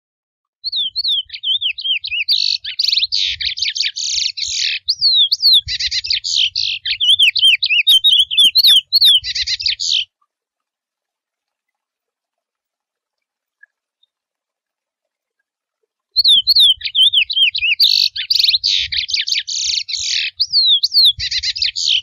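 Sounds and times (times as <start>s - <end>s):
finch singing: 0.7s - 10.1s, 16.2s - 22.0s.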